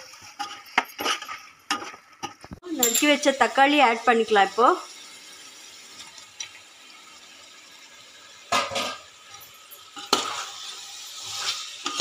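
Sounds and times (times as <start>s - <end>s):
ladle scraping steel pot: 0.0s - 3.1s.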